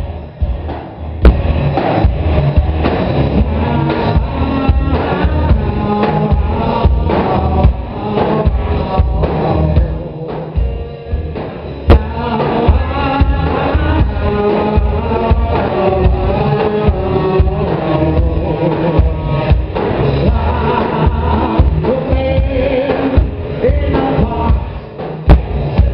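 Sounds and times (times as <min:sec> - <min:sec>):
bass guitar: 0:00.0 - 0:25.9
drum kit beat: 0:00.0 - 0:25.9
electric guitars: 0:00.0 - 0:25.9
sharp drum hits: 0:00.4 - 0:04.3, 0:11.4 - 0:12.9.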